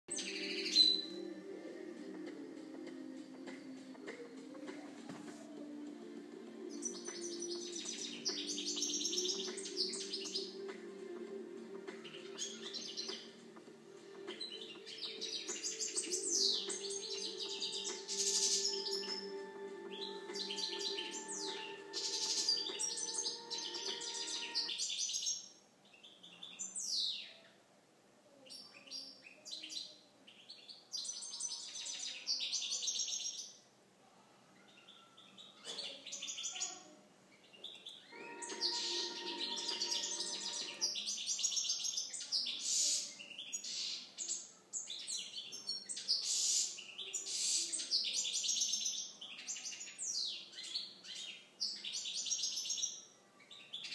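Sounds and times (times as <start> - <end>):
goldfinch twittering song: 6.7 - 10.7, 11.8 - 25.3.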